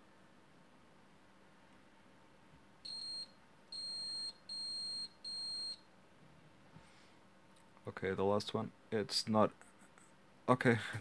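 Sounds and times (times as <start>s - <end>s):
multimeter high-pitched beeps: 2.9s - 5.8s.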